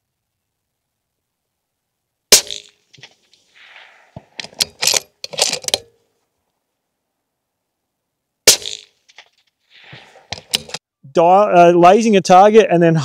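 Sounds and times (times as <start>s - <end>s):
suppressed rifle shot: 2.3s - 5.0s, 8.4s - 10.8s
rifle bolt clicking and rattling: 4.2s - 6.0s, 10.3s - 10.8s.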